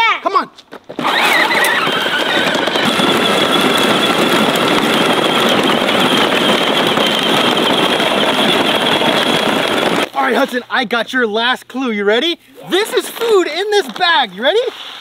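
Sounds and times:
plastic wheels on gravel: 0.7s - 10.6s, 12.8s - 15.0s
electric motor whine: 1.0s - 10.1s.

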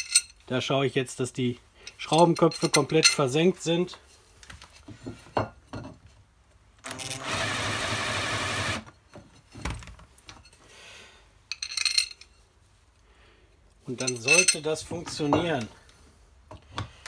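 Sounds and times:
metal clinks and knocks: 0.0s - 0.4s, 1.9s - 3.3s, 11.5s - 12.4s, 14.0s - 15.7s
cordless drill running: 6.9s - 8.8s.

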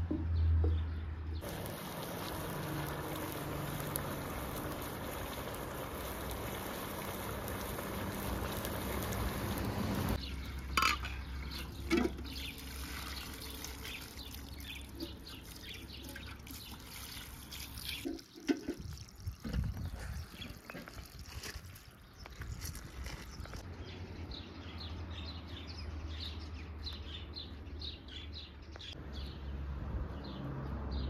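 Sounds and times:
water running: 1.4s - 10.2s.

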